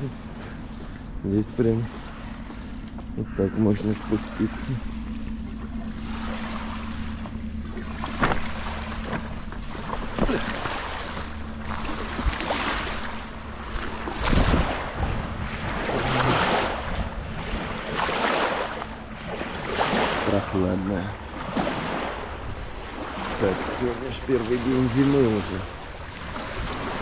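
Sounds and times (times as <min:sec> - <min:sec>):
steady low hum: 0:00.0 - 0:27.0
waves lapping against stone steps: 0:00.0 - 0:27.0
wind gusts on microphone: 0:13.7 - 0:18.4.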